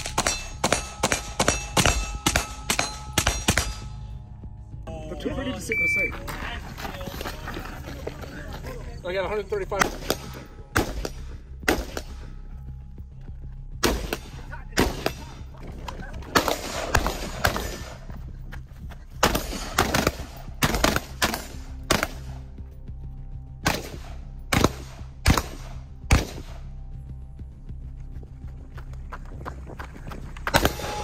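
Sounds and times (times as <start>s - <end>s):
rifle shots: 0.0s - 3.9s, 9.8s - 12.3s, 13.8s - 15.4s, 16.3s - 18.0s, 19.2s - 22.4s, 23.6s - 26.6s, 30.5s - 31.0s
background music with low bass: 0.0s - 31.0s.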